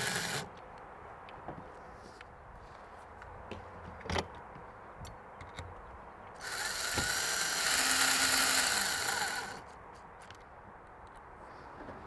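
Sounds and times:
cordless drill driving screw: 0.0s - 0.5s, 6.4s - 9.6s.

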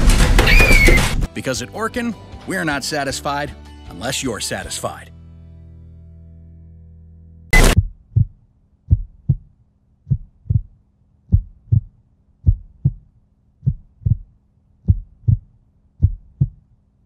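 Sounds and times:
heartbeat thumps: 7.6s - 16.7s.

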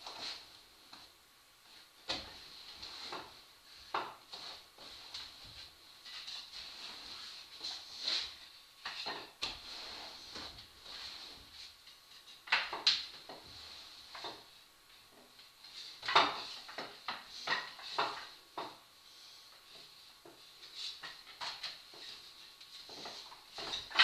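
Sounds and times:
wooden rungs knocking against wall: 12.2s - 13.5s, 16.0s - 18.8s, 22.9s - 24.0s.

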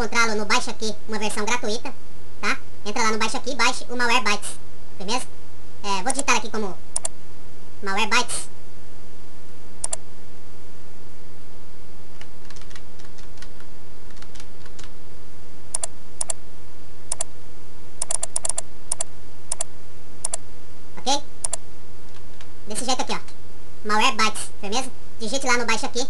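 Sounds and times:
low electrical hum: 0.0s - 26.0s
computer mouse clicks: 7.0s - 7.2s, 9.8s - 10.0s, 12.2s - 14.9s, 15.7s - 16.4s, 17.1s - 17.3s, 18.0s - 20.4s, 21.4s - 22.5s
keyboard keystrokes: 12.2s - 14.9s, 15.8s - 16.4s, 18.0s - 20.4s.

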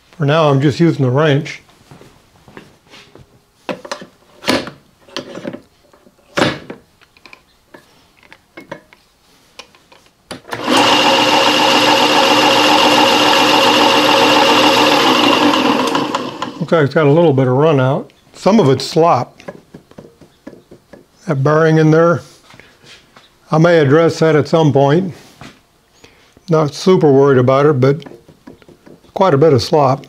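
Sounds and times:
drill press whining: 10.4s - 16.7s.

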